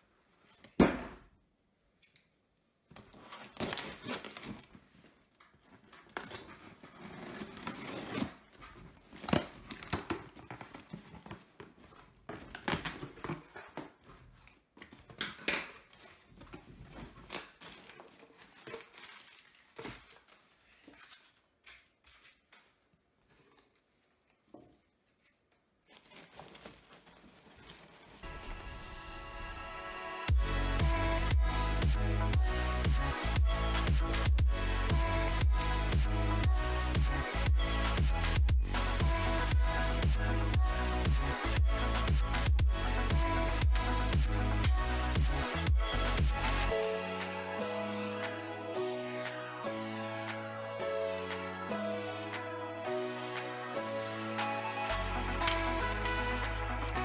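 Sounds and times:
rustling packing material: 3.0 - 28.9.

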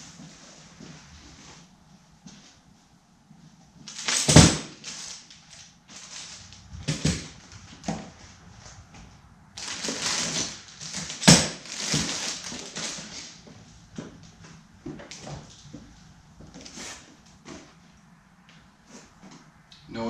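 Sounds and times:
plastic bags crinkling: 3.9 - 7.9, 9.6 - 13.5.

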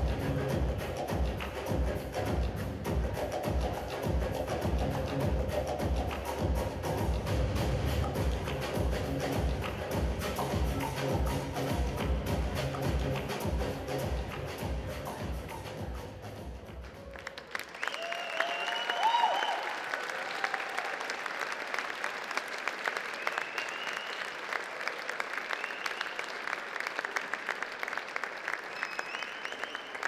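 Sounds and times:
dance music: 0.0 - 17.1
audience clapping: 16.6 - 30.0
audience cheering: 16.9 - 30.0.

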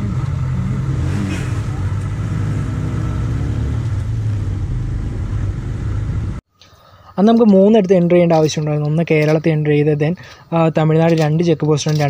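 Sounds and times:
motorcycle engine at low revs: 0.0 - 6.4.

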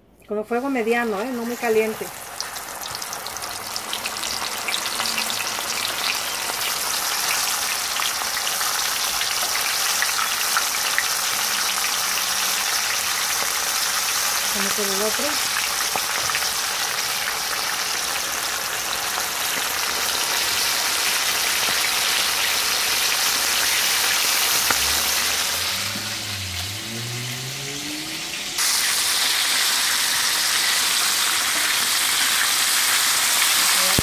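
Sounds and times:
chicken deep-frying in oil: 0.5 - 34.0
faint low rising tone: 24.9 - 28.6.

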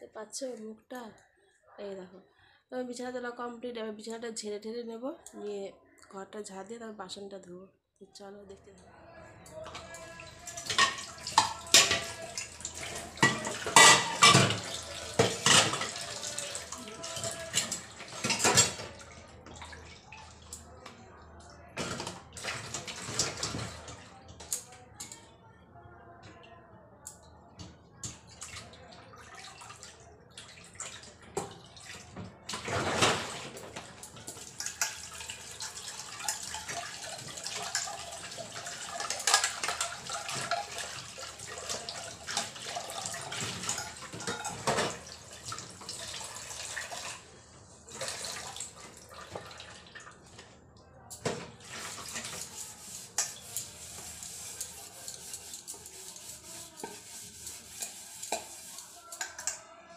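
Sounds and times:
tap water running into sink: 9.7 - 20.6, 30.4 - 47.2, 47.9 - 50.4, 51.2 - 59.6
steel utensils clinking: 10.4 - 19.0.

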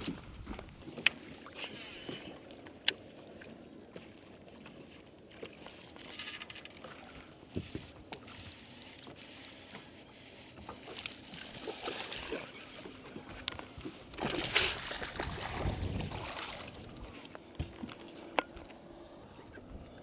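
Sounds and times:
fish thrashing and water splashing: 5.3 - 17.2.

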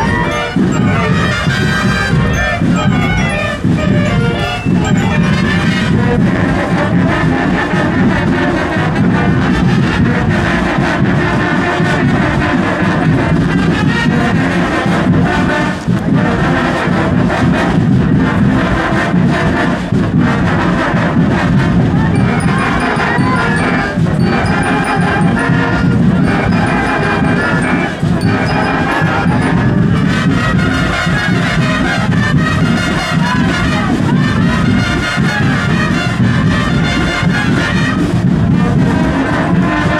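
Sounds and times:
high bell-like notes: 0.0 - 6.3, 22.1 - 30.4
marching band playing: 0.0 - 39.9.

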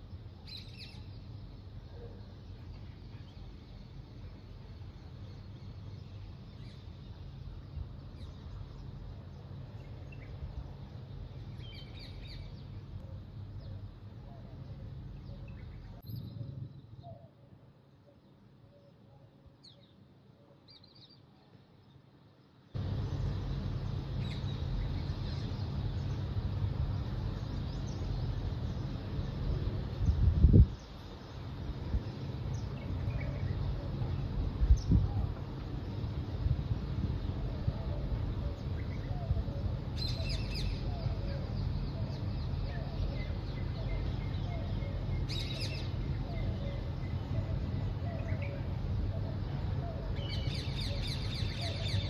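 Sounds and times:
small birds chirping: 0.0 - 52.0
faint bird chirps: 11.5 - 22.0
low background rumble: 20.9 - 52.0.

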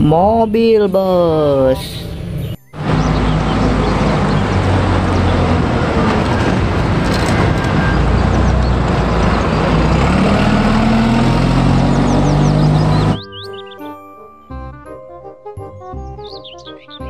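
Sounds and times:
road traffic: 0.7 - 13.8
diesel bus engine pulling away: 2.8 - 13.7.

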